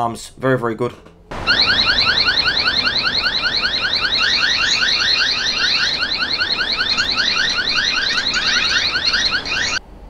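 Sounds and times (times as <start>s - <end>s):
electronic whooping siren: 1.3s - 9.8s.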